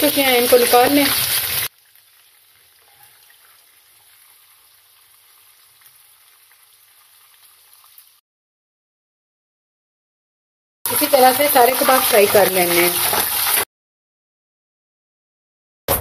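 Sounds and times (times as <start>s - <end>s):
oil sizzling in a pan: 0.0s - 8.2s, 10.9s - 13.7s
small crackles: 11.6s - 13.7s.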